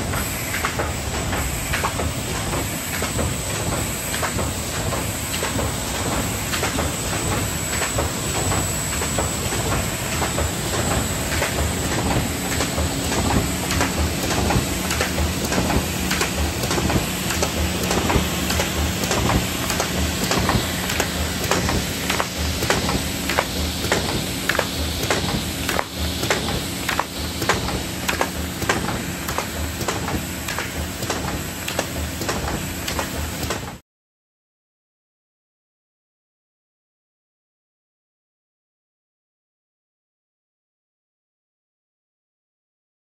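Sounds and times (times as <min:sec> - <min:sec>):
steady hum: 0:00.0 - 0:33.5
sharp clicks and clacks: 0:00.1 - 0:33.8.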